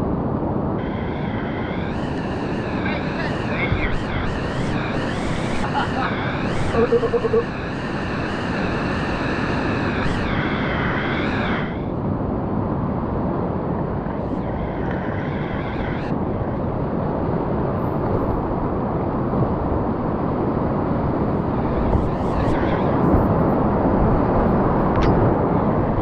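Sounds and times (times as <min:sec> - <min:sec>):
drawn-out high-pitched sounds: 0:01.7 - 0:11.9.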